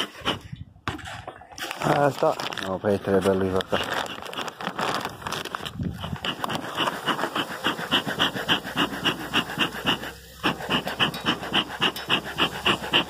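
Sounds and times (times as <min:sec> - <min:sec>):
rapid rhythmic panting: 0:03.8 - 0:13.0.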